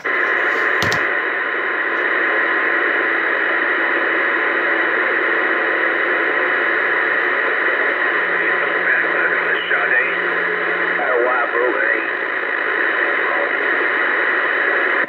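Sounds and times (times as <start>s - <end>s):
radio click: 0.0s - 10.2s
radio static hiss: 0.0s - 15.0s.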